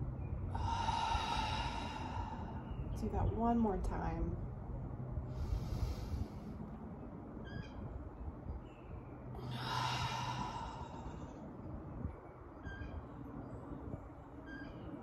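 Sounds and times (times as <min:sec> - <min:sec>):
woman breathing in through nose: 0:00.6 - 0:02.7, 0:05.3 - 0:06.6.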